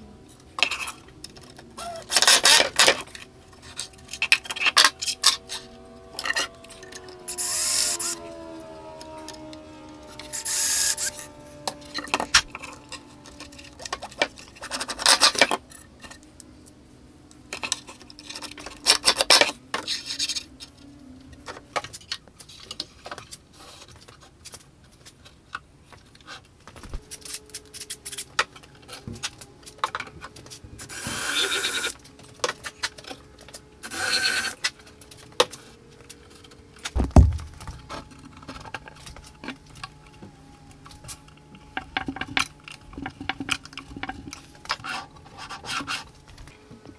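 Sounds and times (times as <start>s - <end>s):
cordless drill driving screws: 1.8s - 8.4s, 10.1s - 13.5s
deep thump: 37.0s - 37.8s.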